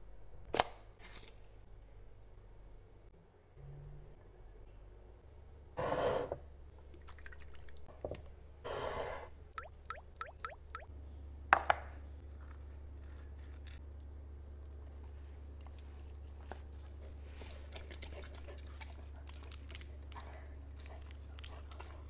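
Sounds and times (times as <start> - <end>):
liquid drops plinking: 9.6 - 10.9.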